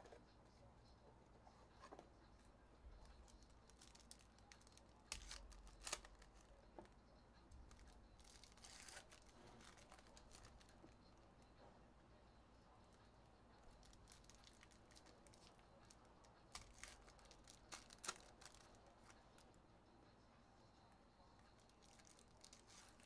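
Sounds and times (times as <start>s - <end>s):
foil wrapper crinkling and tearing: 3.2s - 6.5s, 7.7s - 10.8s, 13.8s - 19.2s, 21.6s - 23.0s.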